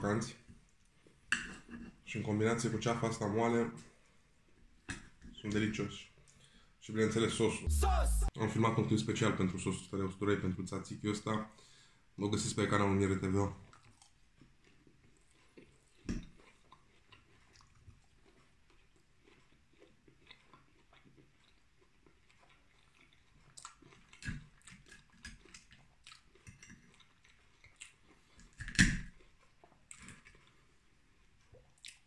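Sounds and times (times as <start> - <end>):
close-up chewing: 13.6 - 32.0.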